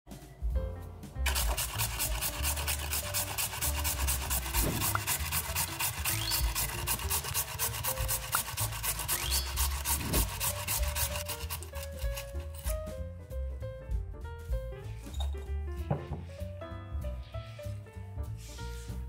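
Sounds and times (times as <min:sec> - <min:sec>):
soft background music: 0:00.1 - 0:19.0
potato grated on box grater: 0:01.3 - 0:12.8.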